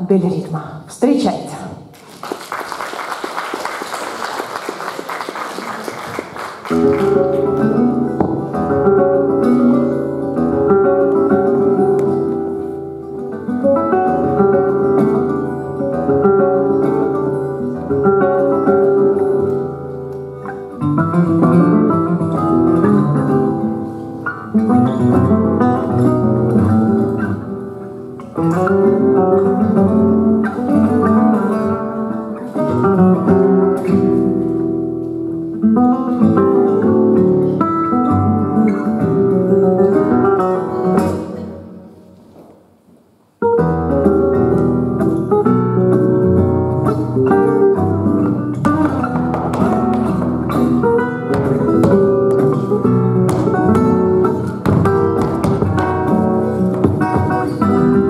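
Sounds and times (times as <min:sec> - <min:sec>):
flamenco acoustic guitar music: 0:01.8 - 0:58.0
audience applause: 0:02.0 - 0:07.6.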